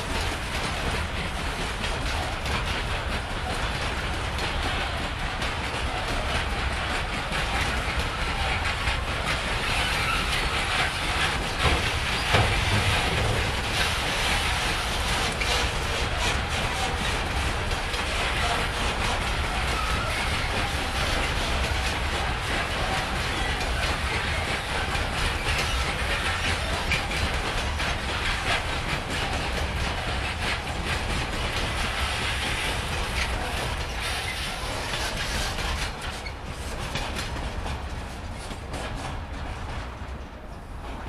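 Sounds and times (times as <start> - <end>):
train rolling past: 0.0 - 41.0
wheels clicking over rail joints: 0.0 - 41.0.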